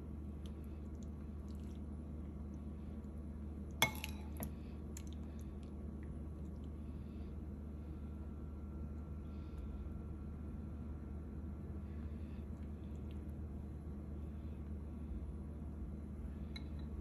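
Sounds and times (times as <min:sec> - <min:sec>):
steady low hum: 0:00.0 - 0:17.0
spoon clinking ceramic bowl: 0:03.8 - 0:04.4.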